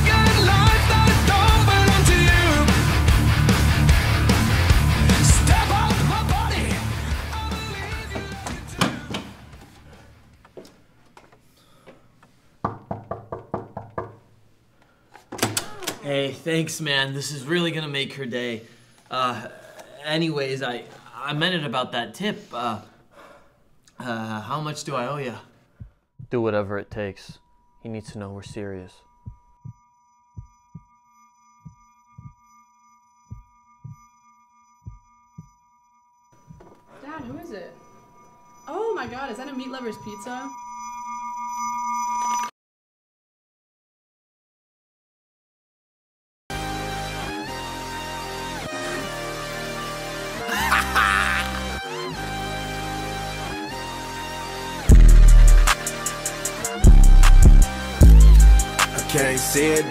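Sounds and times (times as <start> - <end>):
rock music: 0.0 - 8.9, 46.5 - 59.9
knocks on a door: 12.6 - 14.2
slow heartbeat thuds: 25.8 - 26.4, 29.2 - 29.8, 30.4 - 30.9, 31.6 - 32.4, 33.3 - 34.1, 34.8 - 35.6, 36.4 - 36.9
high-pitched ringing tone: 27.3 - 42.5.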